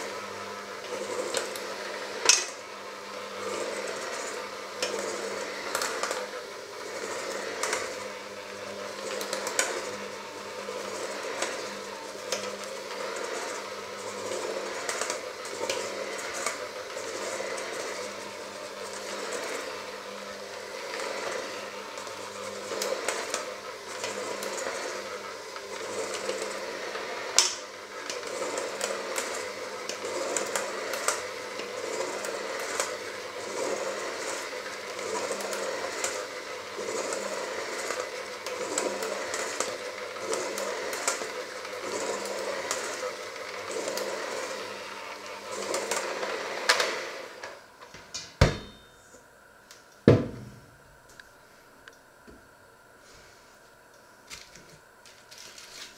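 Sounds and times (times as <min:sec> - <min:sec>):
electric hand mixer running: 0:00.0 - 0:55.9.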